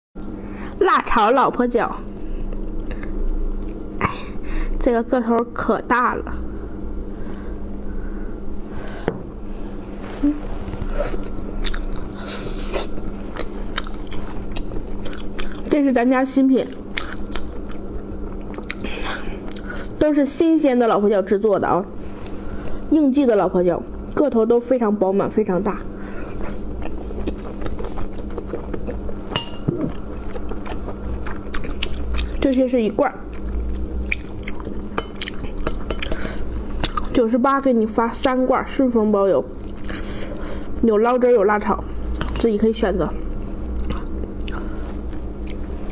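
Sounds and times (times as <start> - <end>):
steady low hum: 0.2 - 45.9
chewing and biting: 11.1 - 15.7, 16.7 - 19.8, 26.3 - 32.6, 33.2 - 36.2, 36.8 - 37.1, 43.7 - 45.7
close chewing: 26.3 - 29.2, 29.9 - 32.5, 33.2 - 36.1.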